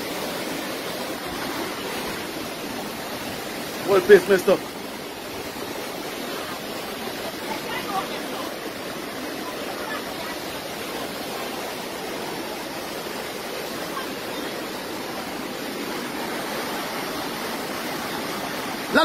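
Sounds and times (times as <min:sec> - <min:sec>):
floodwater rushing: 0:00.0 - 0:19.0.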